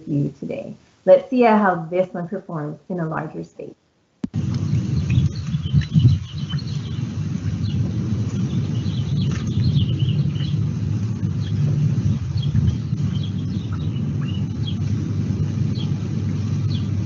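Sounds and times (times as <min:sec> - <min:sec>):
low bumps: 0:04.2 - 0:17.0
steady low rumble: 0:04.2 - 0:17.0
birds chirping: 0:04.4 - 0:17.0.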